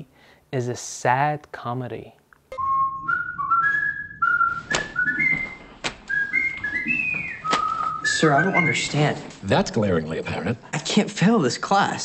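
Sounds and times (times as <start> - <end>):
person whistling a tune: 2.5 - 9.0.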